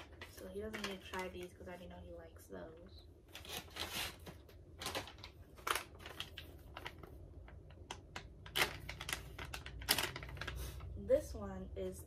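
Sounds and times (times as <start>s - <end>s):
plastic pouches crinkling: 0.0s - 1.9s, 3.3s - 11.0s.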